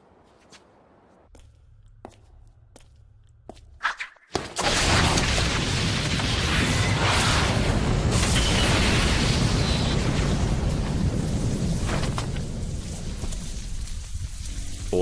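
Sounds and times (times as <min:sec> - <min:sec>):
explosion: 0:04.6 - 0:14.9.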